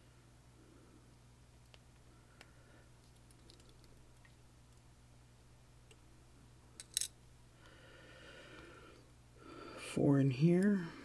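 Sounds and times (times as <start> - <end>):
faint metallic clicks of lock parts: 2.4 - 4.0, 6.8 - 7.1.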